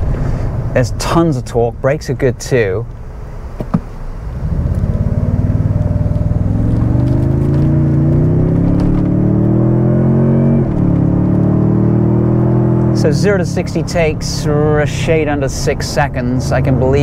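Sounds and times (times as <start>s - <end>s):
truck engine accelerating: 3.9s - 17.0s.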